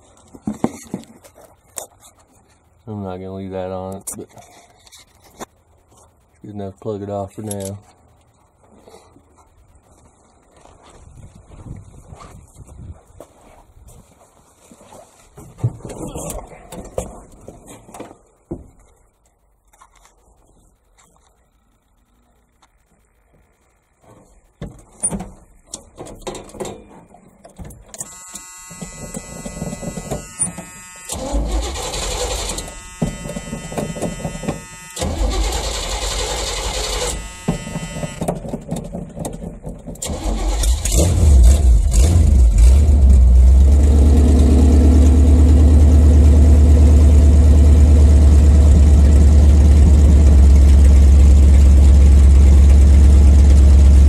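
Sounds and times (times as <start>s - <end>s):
starter motor cranking: 28.0s - 38.2s, 40.0s - 43.4s
truck engine idling: 44.4s - 54.0s.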